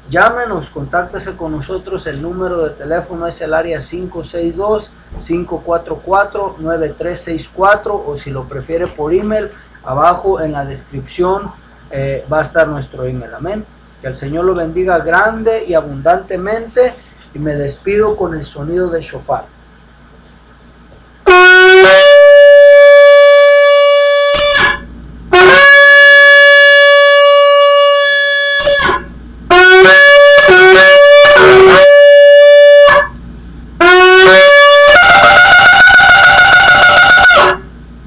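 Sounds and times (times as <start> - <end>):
shofar blasts: 21.3 - 33.2, 33.8 - 37.7.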